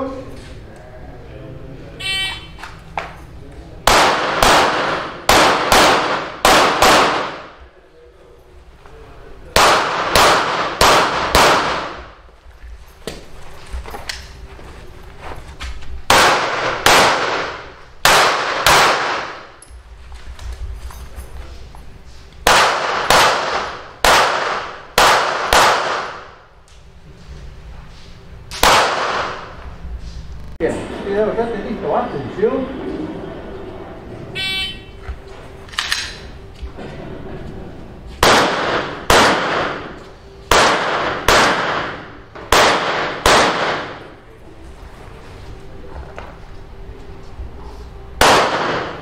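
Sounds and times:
pistol shots with echo: 3.8s - 7.6s, 9.5s - 12.2s, 16.1s - 19.6s, 22.4s - 26.4s, 28.5s - 29.6s, 38.2s - 44.2s, 48.2s - 49.0s.

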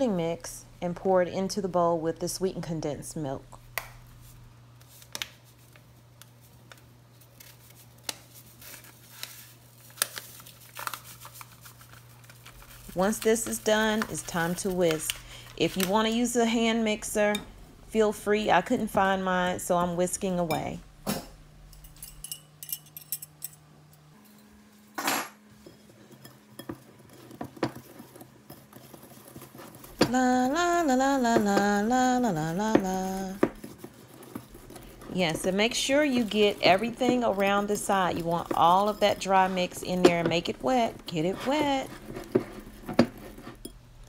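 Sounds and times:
paper box and packet crinkling: 7.1s - 15.9s
whisk scraping glass bowl: 32.4s - 43.7s.

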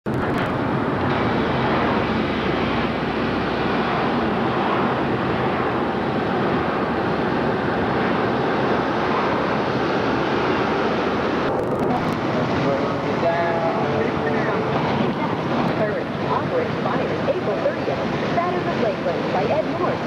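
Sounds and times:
road and wind noise in car: 0.0s - 20.0s.

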